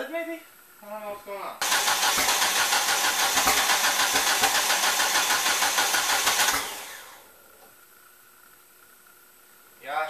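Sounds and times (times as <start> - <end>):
starter cranking engine: 1.6 - 7.2.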